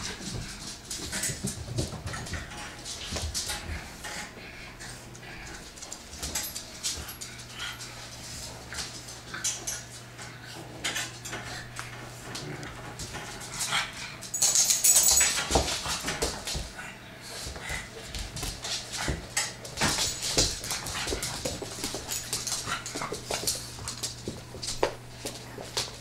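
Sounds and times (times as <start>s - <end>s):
dogs scuffling: 0.0s - 26.0s
dog nails clicking on wood floor: 5.5s - 16.7s, 18.0s - 26.0s.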